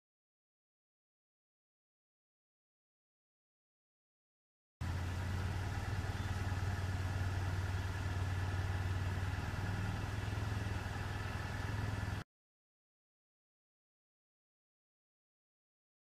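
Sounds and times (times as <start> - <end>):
steady low hum: 4.8 - 12.2
faint high steady tone: 5.2 - 9.2.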